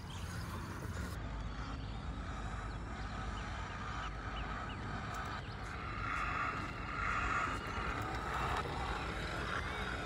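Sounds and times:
toy truck motor whining: 5.1s - 10.0s.

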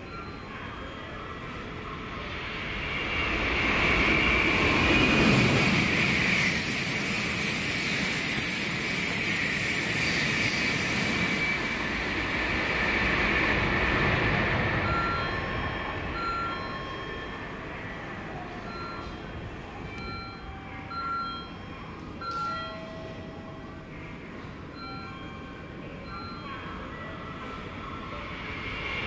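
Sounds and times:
bullet train passing: 0.0s - 29.0s
high whine: 1.0s - 17.7s.

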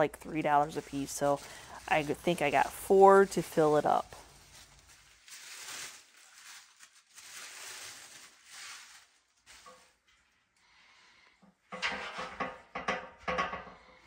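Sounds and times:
tissue paper rustling: 0.2s - 10.4s.

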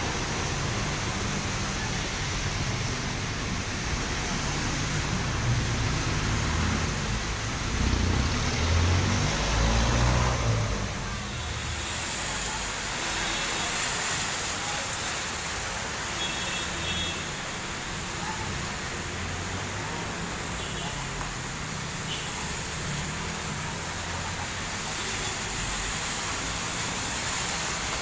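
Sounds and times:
heavy rain on wet street: 0.0s - 28.0s
vehicle engine rumbling past: 5.6s - 11.3s.

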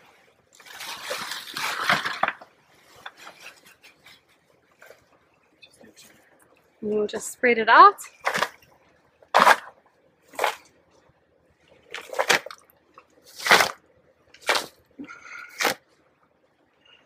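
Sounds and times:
hands rustling compost: 0.0s - 5.2s.

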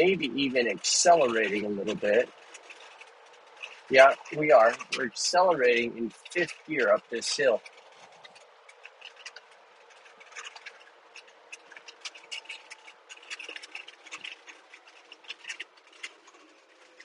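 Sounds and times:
small irregular clicks and ticks: 0.0s - 17.0s.

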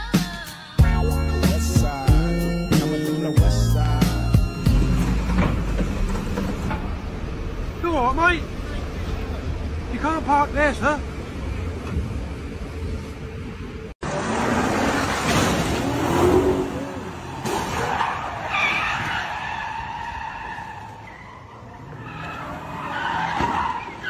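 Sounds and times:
car tires squealing: 14.3s - 24.0s.

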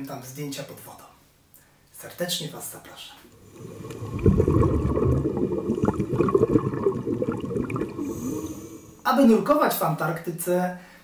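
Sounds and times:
underwater bubbling: 3.3s - 9.1s.

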